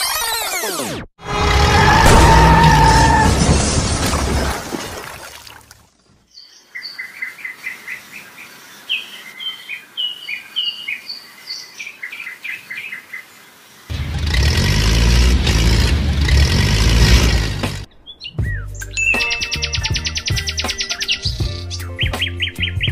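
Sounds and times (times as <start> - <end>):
small birds chirping: 6.0 - 13.9, 17.9 - 22.9.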